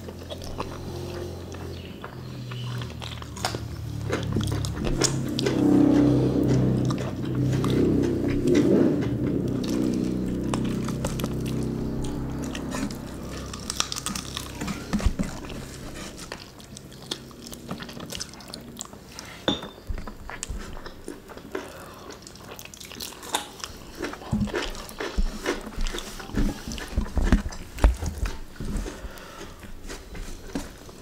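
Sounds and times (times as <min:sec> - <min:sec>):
wet chewing and lip smacking: 0:00.0 - 0:30.6.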